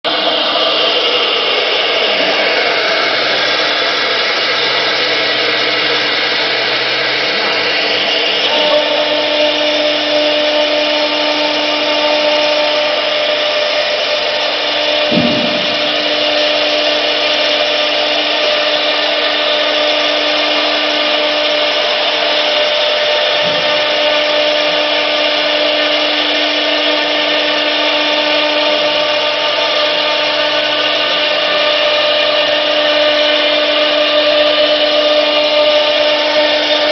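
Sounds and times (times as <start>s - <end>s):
cnc router spindle whine: 0.1s - 36.9s
steady tone: 14.3s - 19.0s.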